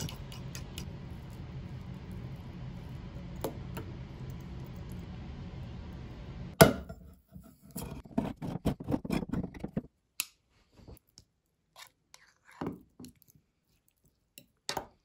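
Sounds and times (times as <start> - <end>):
low steady hum: 0.0 - 7.0.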